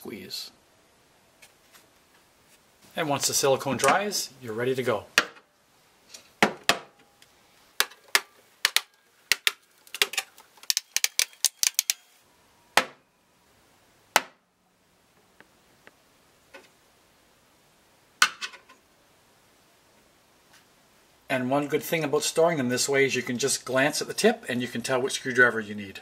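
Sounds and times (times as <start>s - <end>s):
screwdrivers clicking onto magnets: 7.8s - 12.1s.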